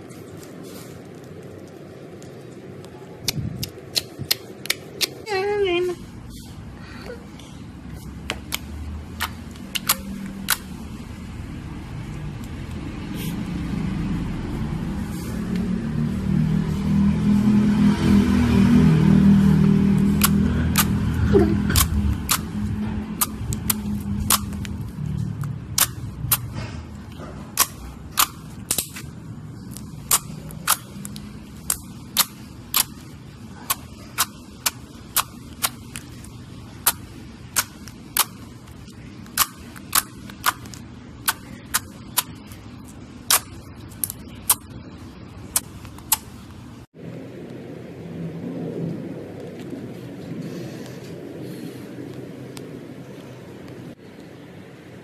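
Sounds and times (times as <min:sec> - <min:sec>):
slime squishing: 0:00.0 - 0:05.3, 0:07.9 - 0:11.0, 0:20.0 - 0:46.7.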